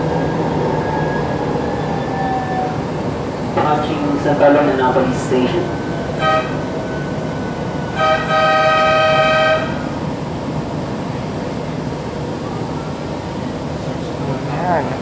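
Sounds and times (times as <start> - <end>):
light rail car rumbling: 0.0 - 15.0
train horn tooting: 6.2 - 6.7, 7.9 - 9.9.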